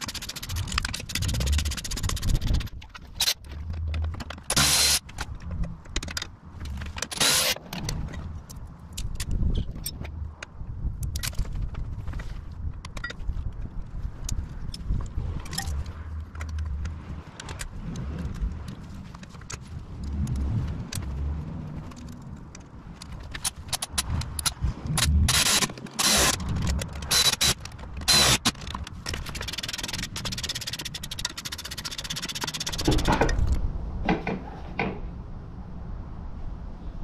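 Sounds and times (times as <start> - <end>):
rapid fine ticking: 0.0 - 5.1.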